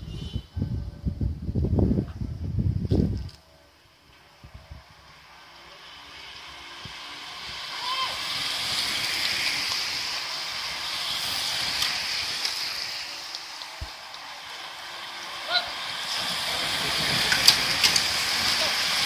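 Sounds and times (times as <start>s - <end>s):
bicycle tyres hissing on asphalt: 0.0s - 19.0s
bicycle chains whirring: 3.9s - 19.0s.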